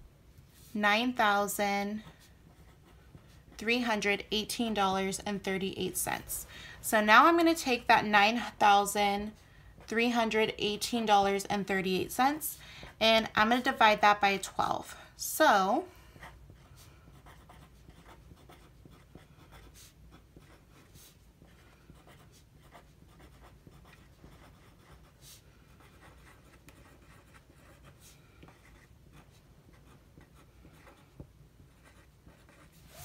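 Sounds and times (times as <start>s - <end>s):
pen scratching on paper: 1.6s - 5.1s, 16.2s - 33.0s.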